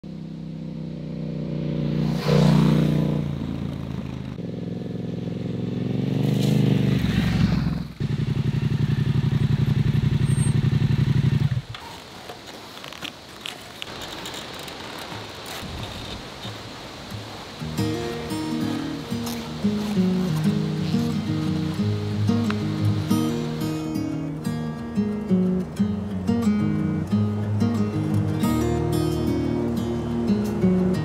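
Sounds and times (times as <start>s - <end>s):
motorcycle engine accelerating: 0.1s - 11.7s.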